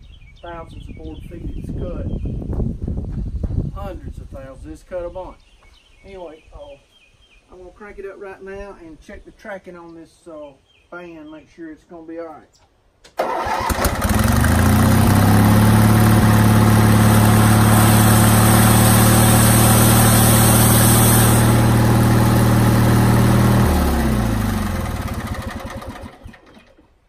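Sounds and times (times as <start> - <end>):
sawmill engine running: 13.2 - 26.8.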